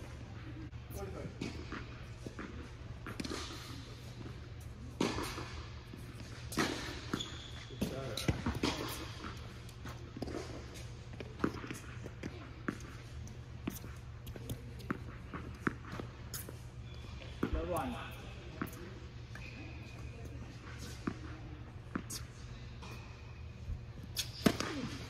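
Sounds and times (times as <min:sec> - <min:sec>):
steady low hum: 0:00.0 - 0:25.0
tennis balls bouncing: 0:01.2 - 0:22.2.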